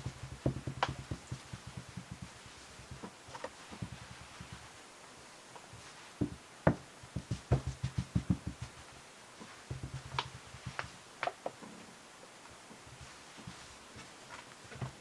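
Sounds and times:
quick low thuds: 0.0s - 4.8s, 5.7s - 11.0s
soft taps and knocks: 0.0s - 4.8s, 5.5s - 11.8s, 12.4s - 15.0s
hand scuffling on blanket: 0.0s - 11.1s, 12.7s - 15.0s.

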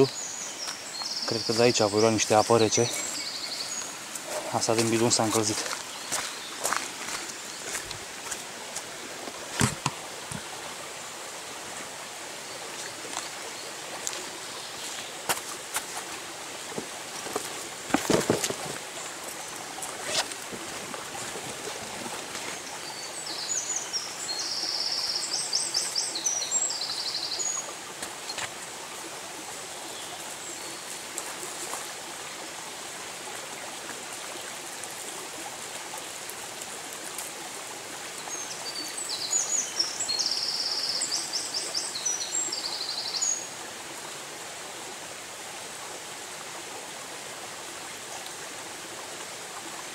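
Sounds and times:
songbird singing: 0.0s - 8.8s, 12.4s - 16.0s, 16.6s - 28.5s, 29.6s - 31.6s, 38.1s - 43.6s
stream running over stones: 0.0s - 49.9s.

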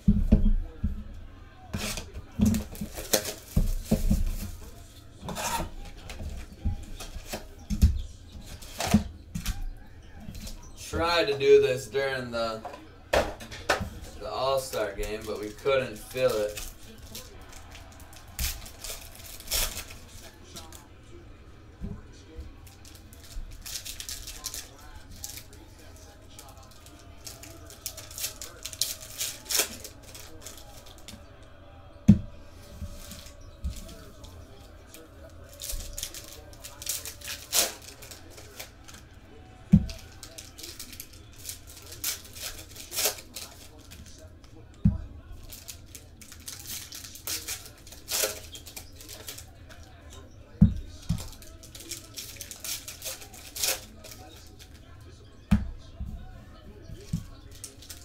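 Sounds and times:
foil wrapper tearing and crinkling: 1.7s - 4.6s, 14.0s - 20.8s, 22.7s - 31.1s, 32.9s - 39.0s, 39.9s - 44.4s, 45.4s - 49.6s, 51.0s - 54.8s, 57.4s - 58.0s.

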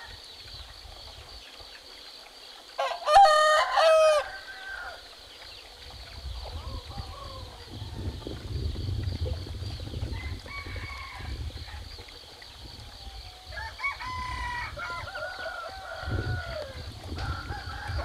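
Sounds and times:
rooster crowing: 2.8s - 5.0s, 13.5s - 18.0s.

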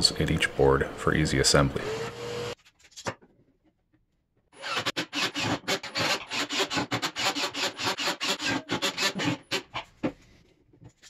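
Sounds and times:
rasping strokes on plywood: 4.6s - 9.8s.

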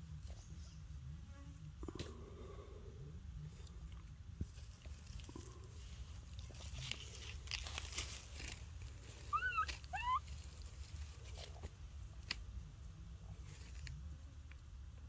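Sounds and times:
soft crackling rustles: 3.4s - 15.0s
squeaky animal chirps: 9.3s - 10.2s.

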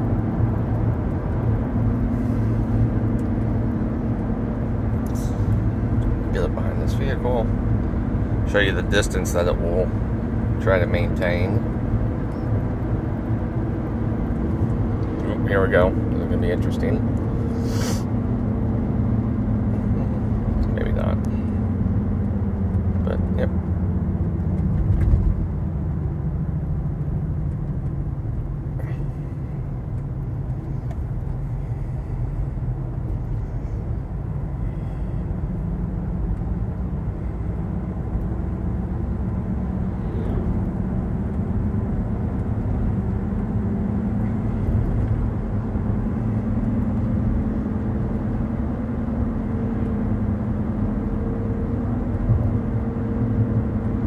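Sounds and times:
car engine noise: 0.0s - 54.0s
low hum: 0.0s - 54.0s
road and tyre rumble: 0.0s - 54.0s.

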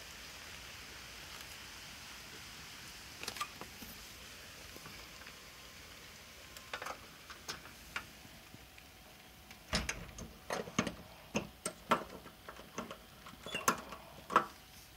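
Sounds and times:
sharp clicks and knocks: 9.7s - 14.6s.

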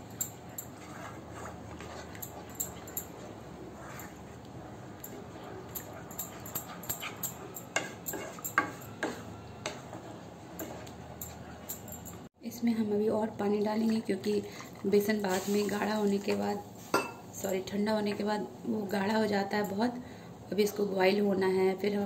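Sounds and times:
spatula stirring thick gravy: 0.1s - 6.1s, 7.1s - 11.5s.

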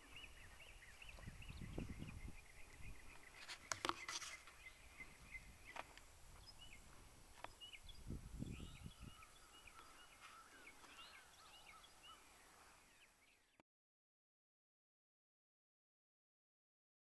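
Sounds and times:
faint high bird chirps: 0.0s - 13.6s
low rumble on microphone: 0.1s - 3.1s, 7.8s - 9.3s.

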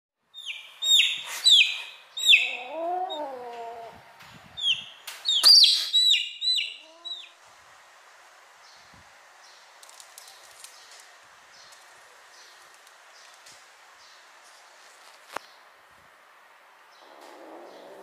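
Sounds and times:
chick peeping: 0.4s - 2.8s, 4.6s - 7.4s.

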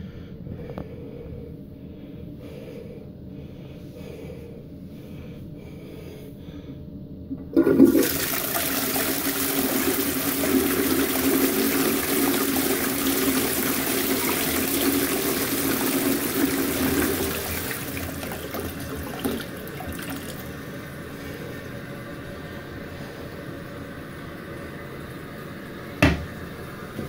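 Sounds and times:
toilet flushing: 7.3s - 27.0s
faint water running: 7.4s - 27.0s
brief knock: 26.0s - 26.3s.

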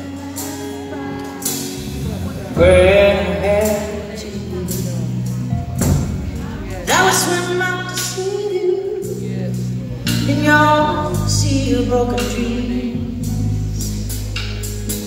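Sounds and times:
woman singing slow ballad: 0.0s - 5.0s, 6.8s - 13.9s
steady bass: 0.0s - 15.0s.

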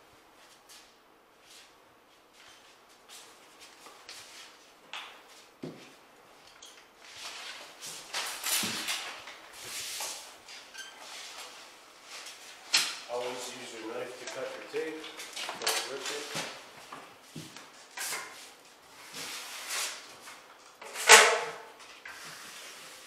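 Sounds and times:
paper tape rustling and scraping: 7.0s - 13.5s, 17.8s - 23.0s.

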